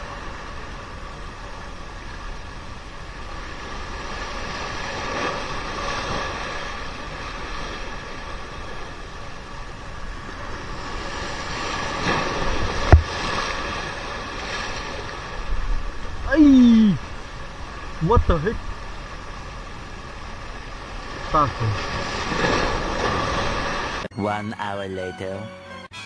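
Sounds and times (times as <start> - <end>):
sea waves washing on shore: 0.0 - 24.0
wind: 0.0 - 24.1
sharp thump: 12.8 - 13.2.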